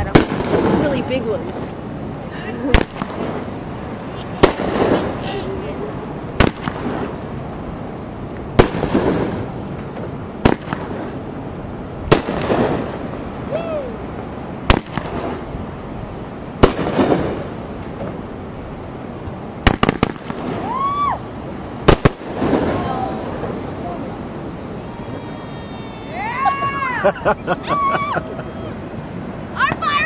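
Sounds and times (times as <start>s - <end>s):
firework bangs with echo: 0.0s - 1.3s, 2.7s - 3.5s, 4.4s - 5.3s, 6.4s - 7.2s, 8.5s - 11.2s, 12.0s - 13.2s, 14.6s - 15.5s, 16.6s - 18.2s, 19.6s - 21.0s, 21.8s - 23.6s.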